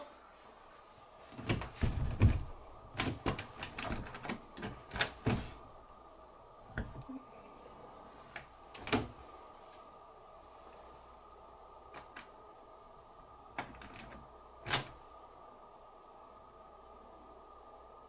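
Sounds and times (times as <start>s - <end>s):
doorknob rattling and latch clicking: 1.4s - 5.5s, 8.7s - 9.1s, 13.6s - 15.0s.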